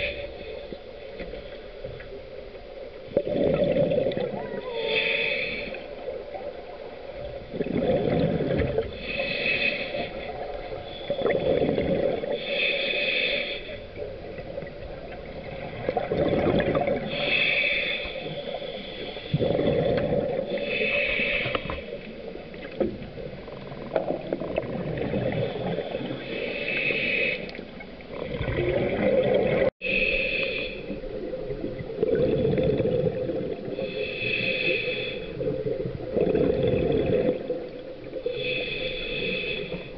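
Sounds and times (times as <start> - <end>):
hissing regulator inhale: 0.0 - 2.1, 4.8 - 6.2, 8.8 - 14.1, 17.0 - 19.8, 20.4 - 22.2, 25.4 - 27.7, 29.8 - 31.0, 33.6 - 35.5, 38.2 - 39.9
bubbling exhale underwater: 3.1 - 5.2, 7.5 - 9.1, 11.1 - 12.4, 15.2 - 17.2, 19.3 - 21.3, 23.5 - 26.2, 28.1 - 29.7, 31.0 - 34.0, 35.3 - 38.6.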